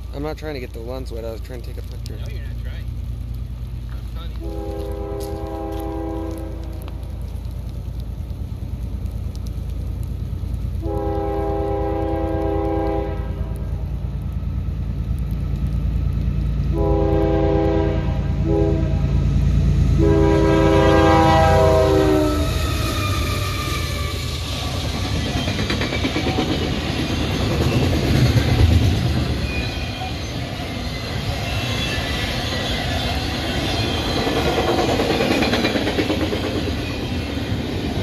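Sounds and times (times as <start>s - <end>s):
train rumble: 0.0s - 38.0s
locomotive chime horn blasts: 4.4s - 6.7s, 10.8s - 13.5s, 16.8s - 19.0s, 20.0s - 22.4s.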